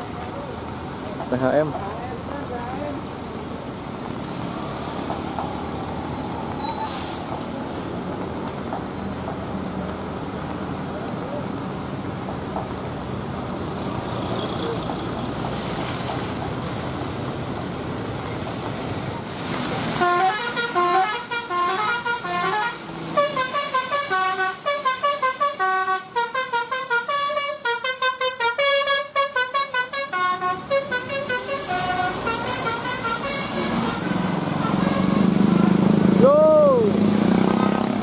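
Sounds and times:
traffic: 0.0 - 38.0
heavy rain hiss: 13.4 - 17.8, 18.6 - 26.3, 30.6 - 37.5
bus horn playing a melody: 20.0 - 35.8.

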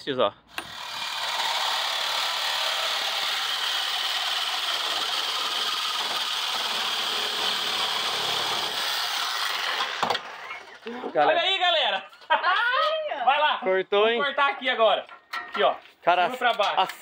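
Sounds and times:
reciprocating saw cutting steel: 0.5 - 10.9.

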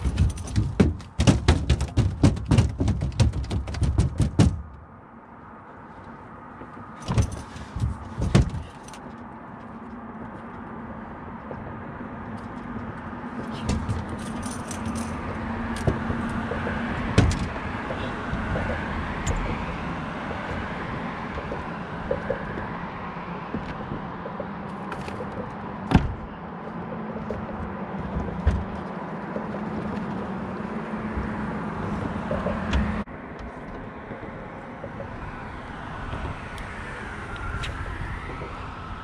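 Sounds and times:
metallic rattling of gear: 0.0 - 1.2, 7.0 - 9.2, 13.4 - 16.4.

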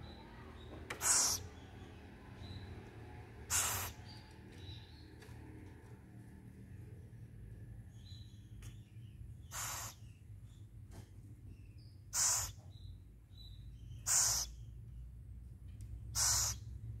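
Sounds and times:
owl raspy hissing calls: 1.0 - 1.5, 3.5 - 4.0, 9.4 - 10.1, 12.1 - 12.6, 14.0 - 14.6, 16.1 - 16.7.

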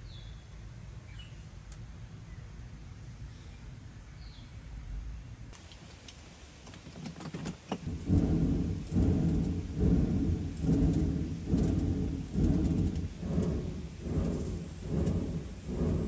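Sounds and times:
blower whooshing pulses: 7.8 - 16.0.

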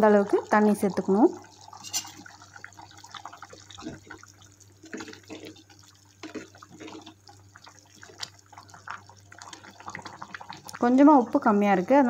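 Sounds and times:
thick curry bubbling in a pot: 0.0 - 11.9
steel ladle stirring: 1.7 - 2.4.

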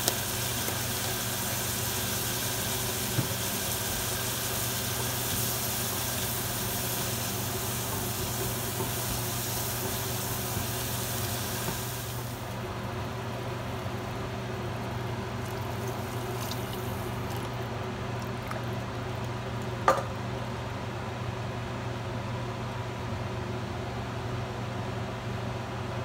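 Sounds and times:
tomatoes sizzling in oil: 0.0 - 17.7.

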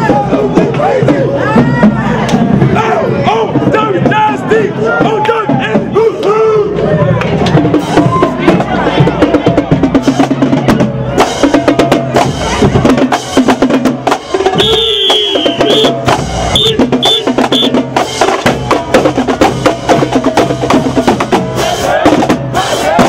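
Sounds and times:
bass drums: 0.0 - 23.0
snare drum strokes: 14.1 - 18.7.

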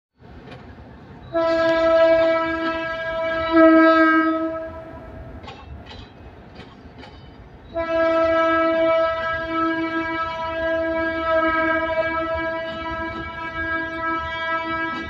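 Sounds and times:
passing train clacks: 0.2 - 15.0
locomotive horn blast: 1.3 - 5.4, 7.7 - 15.0.

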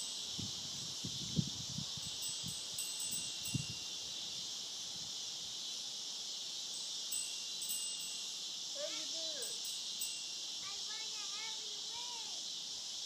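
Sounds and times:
high-pitched insect chorus: 0.0 - 13.0
wind buffeting microphone: 0.3 - 3.8.

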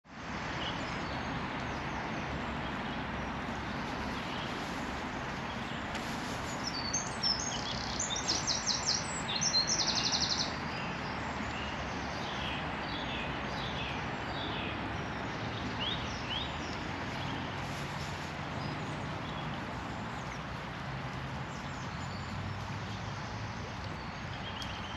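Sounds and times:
songbirds singing: 0.1 - 24.9.

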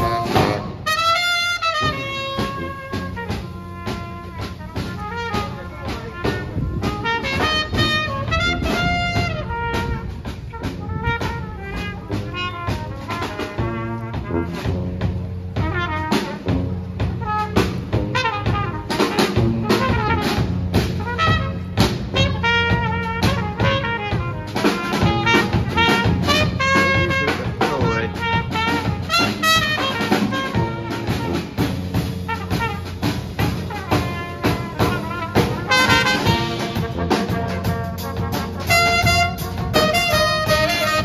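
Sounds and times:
drum kit beat: 0.0 - 41.0
trombone: 0.0 - 41.0
trumpet: 0.0 - 41.0
saxophones: 21.1 - 41.0.

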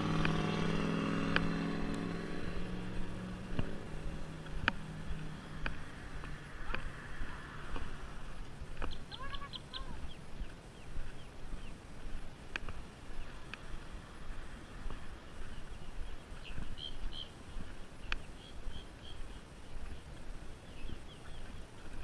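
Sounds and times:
steady low rumble: 0.0 - 22.0
high bird chirps: 8.8 - 11.8, 15.5 - 17.4.

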